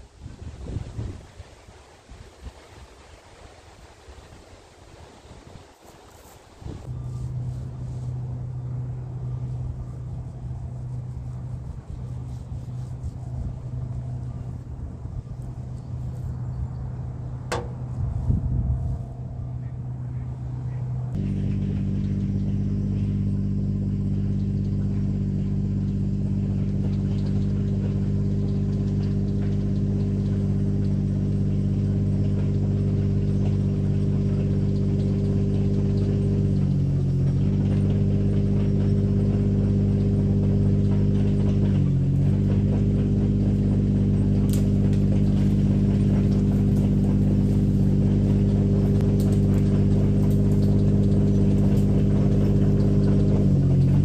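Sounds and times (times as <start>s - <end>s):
excavator engine running: 6.8s - 54.0s.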